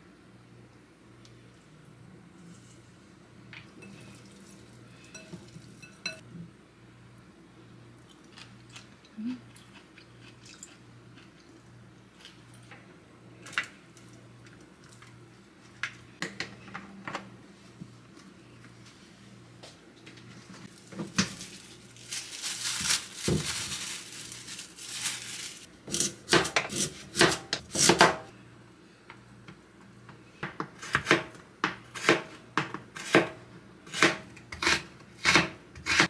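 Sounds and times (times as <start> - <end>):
dishes and cutlery clinking: 5.1 - 6.2.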